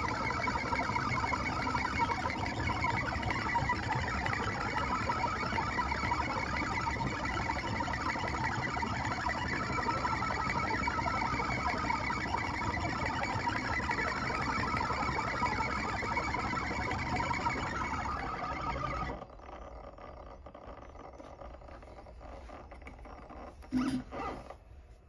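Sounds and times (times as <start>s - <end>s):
router spindle whine: 0.0s - 25.0s.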